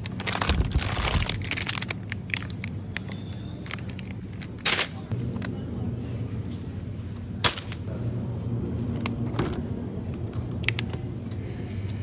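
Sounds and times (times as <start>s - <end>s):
plastic packaging crackling: 0.0s - 5.1s
refrigerated cases humming: 0.0s - 12.0s.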